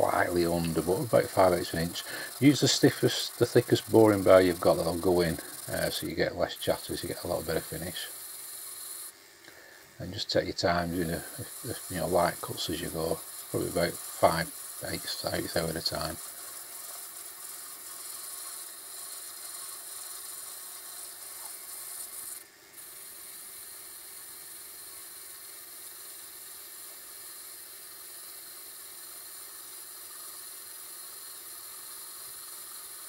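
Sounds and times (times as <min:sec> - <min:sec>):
metal lathe cutting: 0:00.0 - 0:09.1, 0:10.3 - 0:23.0.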